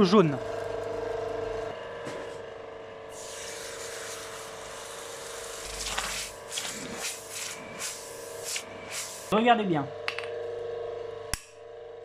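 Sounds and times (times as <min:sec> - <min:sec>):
forge blower humming: 0:00.0 - 0:12.0
hiss: 0:03.1 - 0:09.4.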